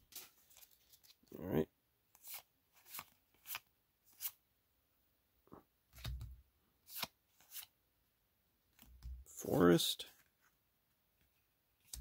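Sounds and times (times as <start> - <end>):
trading cards swishing and snapping: 2.2 - 4.4, 6.9 - 7.7.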